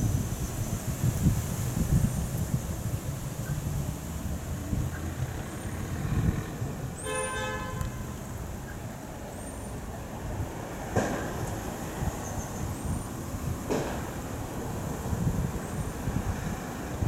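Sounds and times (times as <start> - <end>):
wind rumble on microphone: 0.0 - 17.0
vehicle horn toot: 7.0 - 8.1.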